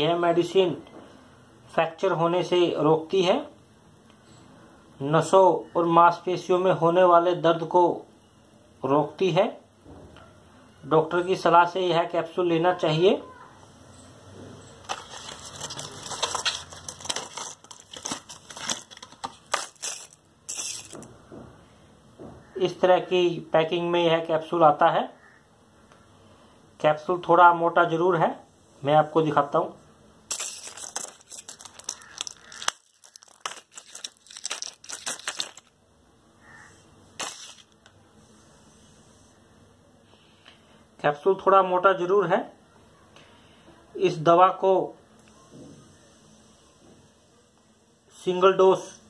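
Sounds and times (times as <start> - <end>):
carton and blister pack crinkling: 14.8 - 21.1, 30.3 - 35.7, 37.2 - 37.9.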